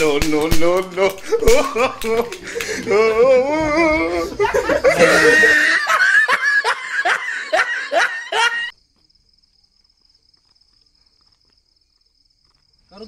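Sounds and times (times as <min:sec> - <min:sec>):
crickets chirping: 0:00.0 - 0:13.0
man laughing loudly: 0:00.8 - 0:08.7.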